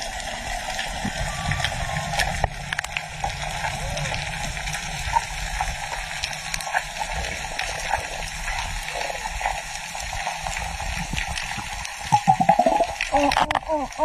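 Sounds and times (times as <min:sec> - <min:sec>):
low rumble of moving water: 0:00.0 - 0:14.0
dense crackle of short clicks: 0:01.6 - 0:03.2.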